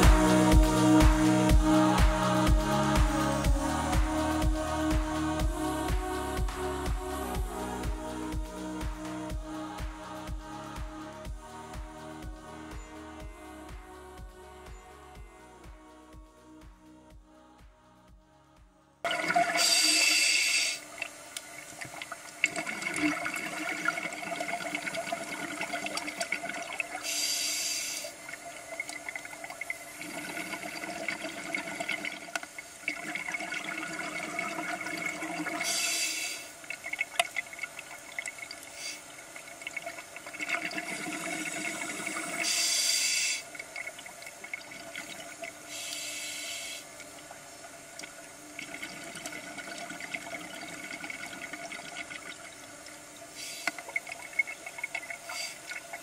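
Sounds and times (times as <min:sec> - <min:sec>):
regulator hiss and hum: 0:00.0 - 0:56.0
exhaled bubbles gurgling underwater: 0:19.1 - 0:27.1, 0:28.1 - 0:45.9, 0:46.9 - 0:56.0.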